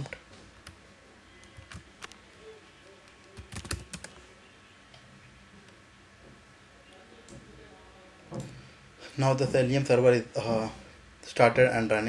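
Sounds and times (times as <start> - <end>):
keyboard keystrokes: 3.1 - 4.2.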